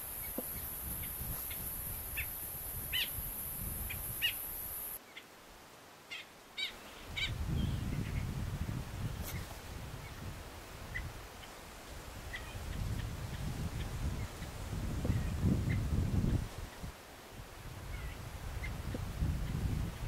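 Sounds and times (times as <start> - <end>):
small birds chirping: 0.0 - 5.3.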